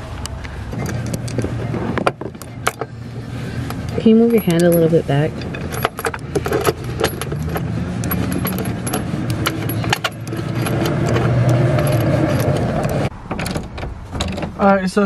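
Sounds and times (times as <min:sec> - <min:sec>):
small metallic clicks: 0:03.6 - 0:14.5.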